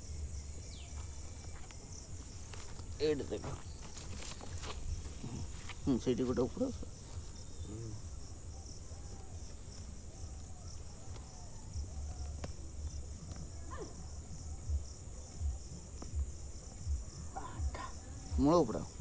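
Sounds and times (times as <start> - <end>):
crickets trilling: 0.0 - 19.0
vine stems rustling and snapping: 3.7 - 4.8.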